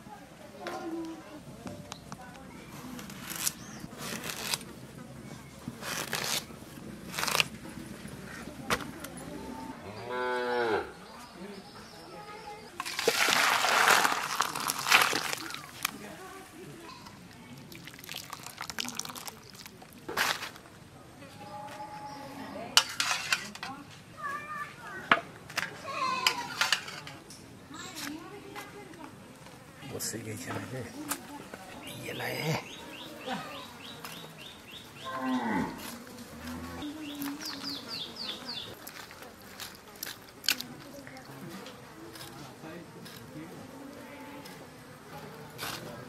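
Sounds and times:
water sloshing and dripping in a bowl: 12.8s - 16.0s, 17.6s - 20.0s.

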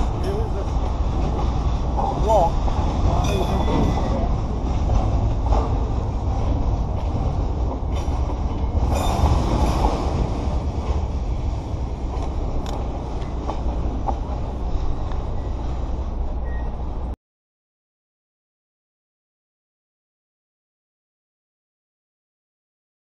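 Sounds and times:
train wheels rumbling on track: 0.0s - 17.2s.

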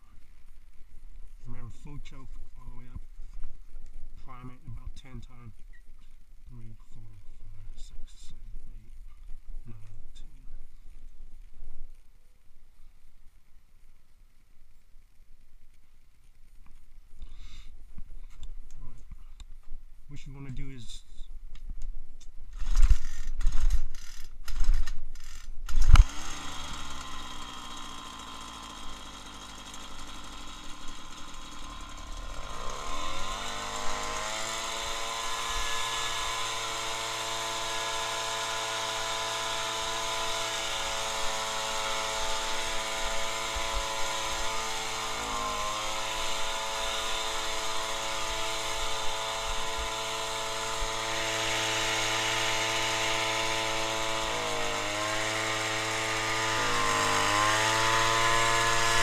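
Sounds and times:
leaf blower engine running: 25.9s - 59.0s.

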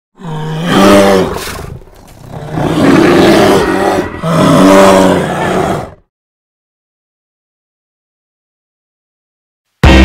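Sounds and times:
bear growling: 0.2s - 6.1s
bear roaring: 0.2s - 6.1s.

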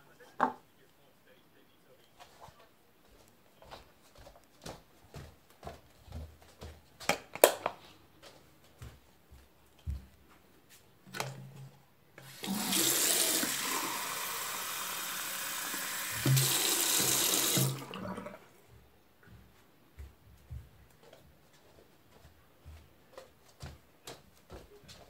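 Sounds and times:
tap water running into jug: 12.2s - 18.4s.

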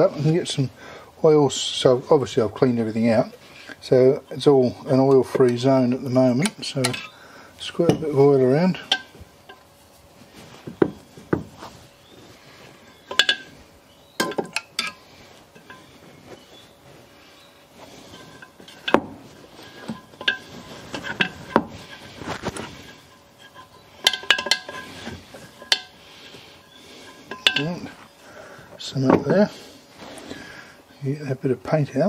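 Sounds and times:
metallic clinks and knocks: 12.6s - 13.6s, 14.2s - 16.4s, 17.8s - 28.1s.

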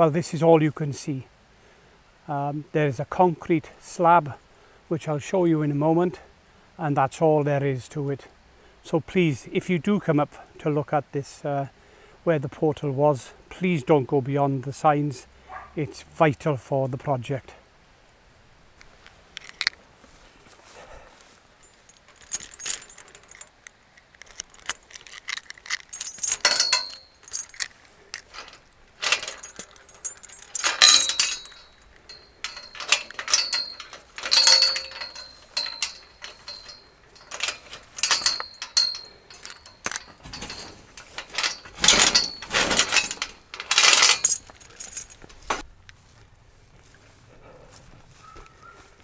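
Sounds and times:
metal chain rattling: 21.6s - 45.6s
metal gate clanking: 22.0s - 23.5s, 25.4s - 45.6s.

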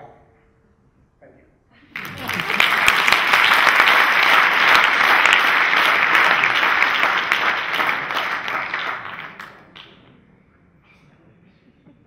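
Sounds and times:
audience applauding: 1.9s - 10.0s.

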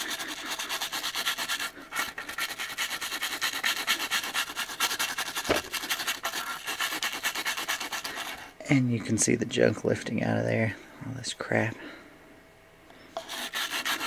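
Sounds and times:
stiff brush scrubbing wood: 0.0s - 8.5s, 13.2s - 14.0s.

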